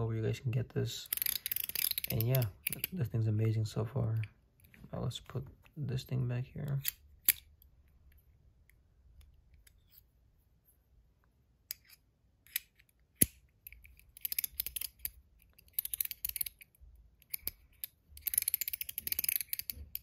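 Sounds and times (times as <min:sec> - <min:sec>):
metal fidget coin clicks: 0:01.1 - 0:02.9, 0:14.0 - 0:20.0
rapid ratchet clicking: 0:18.2 - 0:20.0.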